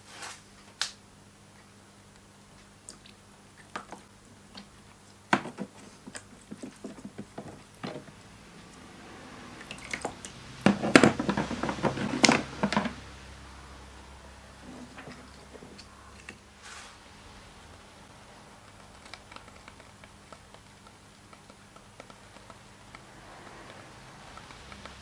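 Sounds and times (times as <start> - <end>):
louder clicks and knocks: 10.6 - 13.1
syringe clicks squelches and drips: 18.6 - 25.0.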